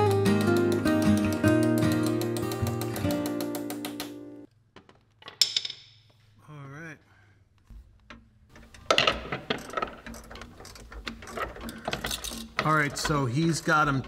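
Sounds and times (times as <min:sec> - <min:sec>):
ratcheting wrench clicking: 0:09.5 - 0:13.2.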